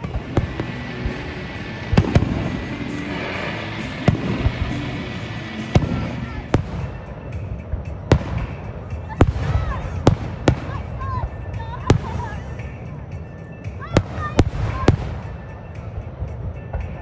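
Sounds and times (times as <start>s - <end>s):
firework shells bursting: 0.0s - 11.0s.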